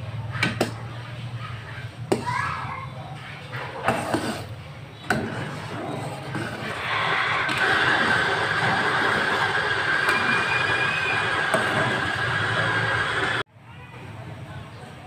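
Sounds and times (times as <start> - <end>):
milky mixture sizzling in pan: 6.3 - 13.4.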